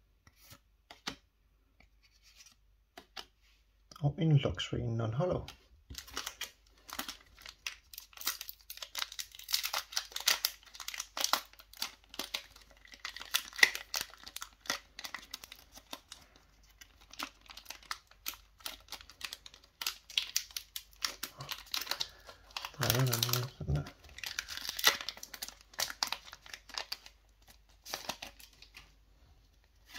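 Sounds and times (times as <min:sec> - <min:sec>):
foil wrapper crinkling: 0:05.9 - 0:28.9
foil wrapper tearing: 0:06.0 - 0:28.8.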